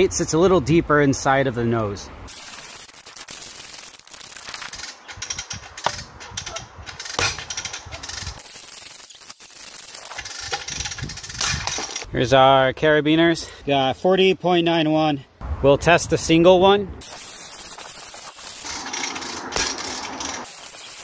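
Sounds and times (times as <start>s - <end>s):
loud metal crack: 2.3s - 12.1s, 17.0s - 21.0s
sharp metallic clicks and snaps: 2.4s - 12.1s.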